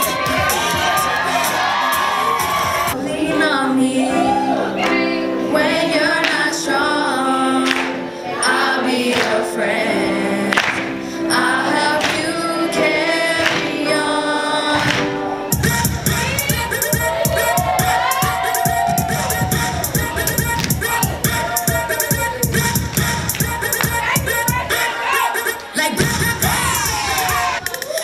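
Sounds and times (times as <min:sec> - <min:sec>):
beat-driven dance track: 0:00.0 - 0:03.0, 0:15.6 - 0:28.0
young voices singing in harmony: 0:00.0 - 0:28.0.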